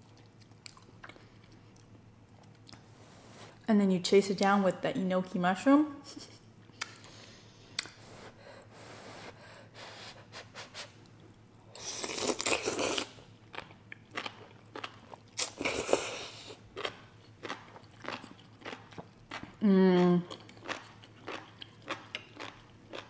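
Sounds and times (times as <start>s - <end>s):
wet chewing: 0.0s - 2.8s, 16.8s - 19.6s.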